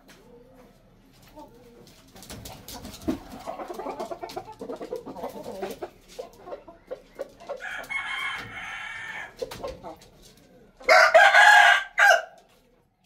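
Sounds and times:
hens clucking: 0.0s - 13.0s
rooster crowing: 7.6s - 9.4s, 10.9s - 12.4s.

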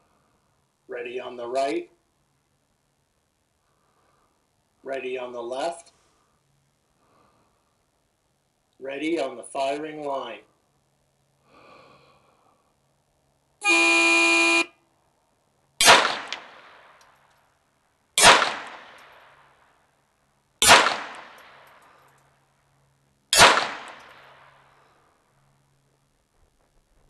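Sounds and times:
start signal tone: 13.6s - 14.7s
pistol shots with echo: 15.8s - 17.0s, 18.2s - 19.3s, 20.6s - 21.7s, 23.3s - 24.6s.

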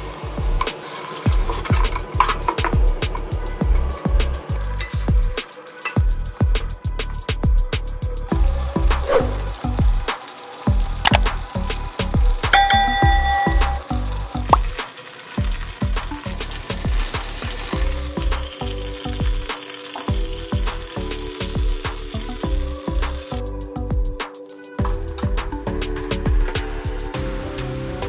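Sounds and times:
chicken sizzling in a pan: 0.0s - 27.2s
background music with beat: 0.0s - 28.0s
bright chime: 12.6s - 13.9s.

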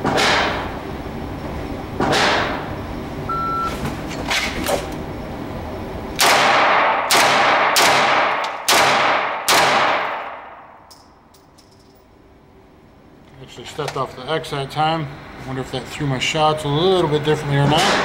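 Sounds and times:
shot timer beep: 3.3s - 3.7s
pistol shots echoing: 6.2s - 10.6s.

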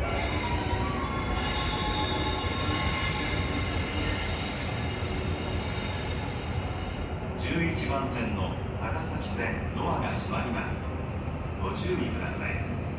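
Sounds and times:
train wheels squealing: 0.0s - 7.2s
low train rumble: 0.0s - 12.9s.

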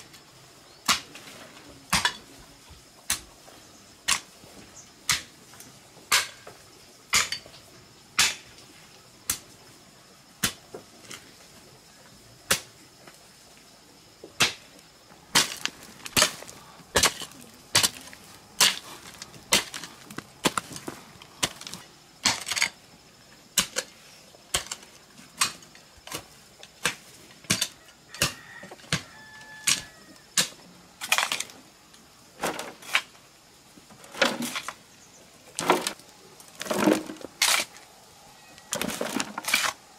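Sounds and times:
hoe chopping into clay soil: 15.3s - 22.7s.

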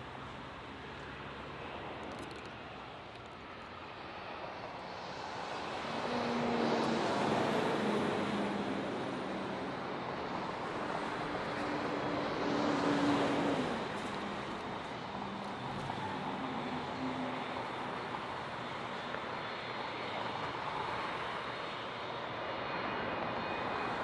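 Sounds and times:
jet engines rushing: 1.2s - 24.0s.

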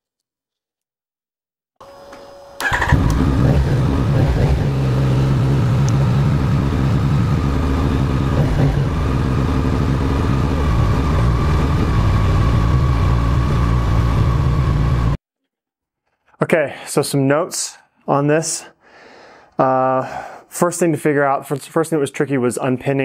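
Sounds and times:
starter motor whir: 2.1s - 15.2s
motorcycle engine idling: 2.6s - 15.2s.

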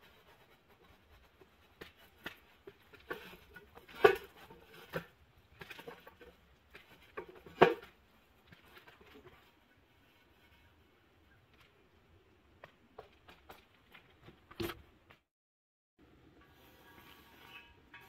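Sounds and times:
metal knocks and scrapes: 0.7s - 9.5s, 16.2s - 18.0s.

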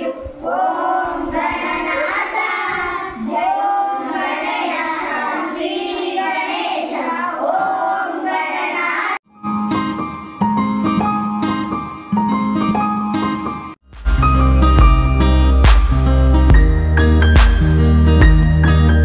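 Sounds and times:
girls singing together: 0.0s - 9.2s
instrumental music: 9.3s - 19.0s.

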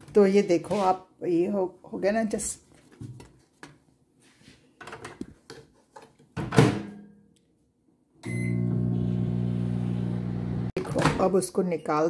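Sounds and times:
microwave beep: 8.2s - 10.7s
microwave humming: 8.2s - 10.8s.

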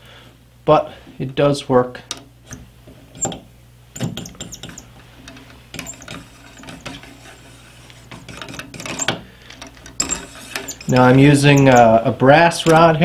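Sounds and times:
cleaning rod clicks and rubbing: 4.0s - 13.0s.

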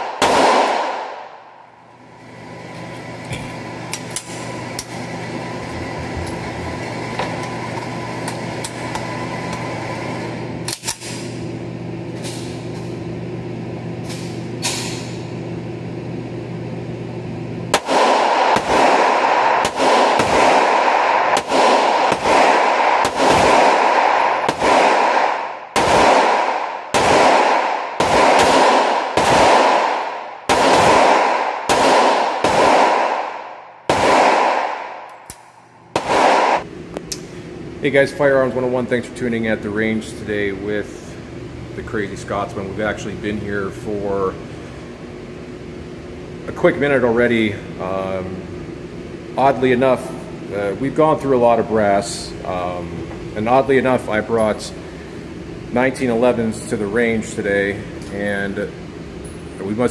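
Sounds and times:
pistol shots ringing indoors: 0.0s - 1.8s, 17.7s - 36.7s
ventilation hum: 0.0s - 59.9s
gun handling clicks: 10.7s - 11.2s, 35.0s - 35.6s.

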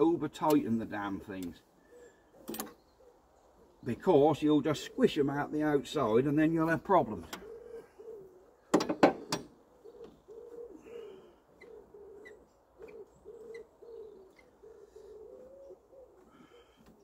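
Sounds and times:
pigeon cooing: 1.8s - 3.8s, 7.2s - 17.0s.

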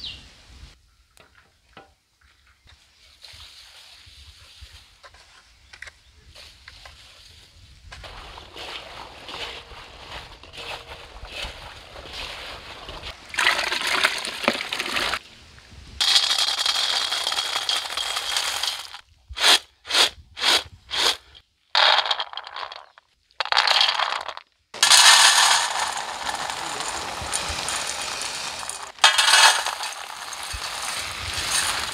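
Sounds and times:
dry snack poured onto steel plate: 16.0s - 19.0s, 21.8s - 31.9s
peanuts tossed in steel bowl: 16.0s - 21.2s, 21.8s - 31.9s.

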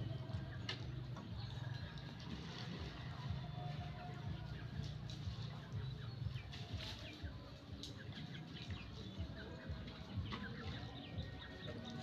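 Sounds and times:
birds chirping: 0.0s - 12.0s.

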